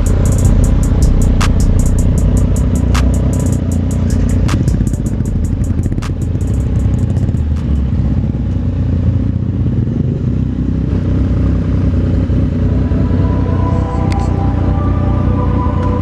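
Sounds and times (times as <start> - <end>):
motorcycle engine idling: 0.0 - 16.0
sharp click: 3.0 - 3.8, 6.0 - 6.7.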